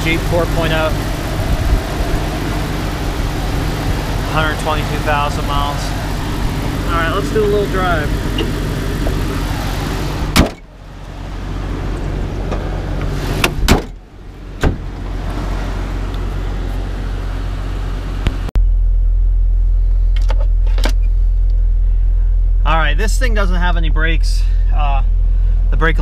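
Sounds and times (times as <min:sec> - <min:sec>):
car engine idling: 0:00.0 - 0:26.0
car hood slamming: 0:10.2 - 0:10.6, 0:12.5 - 0:14.0, 0:14.6 - 0:15.0.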